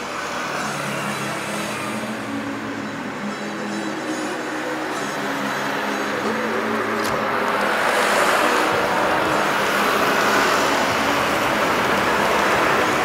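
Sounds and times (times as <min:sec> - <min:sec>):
jet engines rushing: 0:04.4 - 0:13.0.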